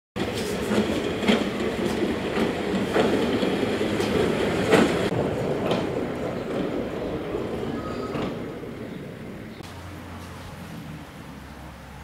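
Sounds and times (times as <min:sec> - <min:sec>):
wheels clicking over rail joints: 0:00.2 - 0:09.6
train wheels rumbling on rail: 0:00.2 - 0:11.4.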